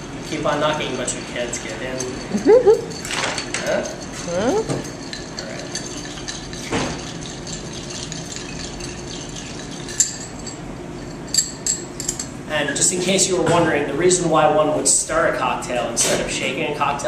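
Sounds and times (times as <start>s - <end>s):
ice rattling in a glass: 4.8s - 10.6s.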